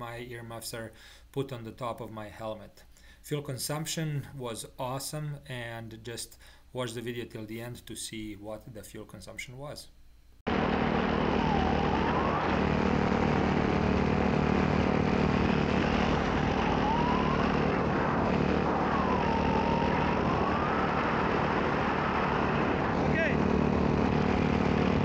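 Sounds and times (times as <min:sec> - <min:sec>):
faint higher whine: 0:09.9 - 0:25.0
paramotor engine drone: 0:10.5 - 0:25.0.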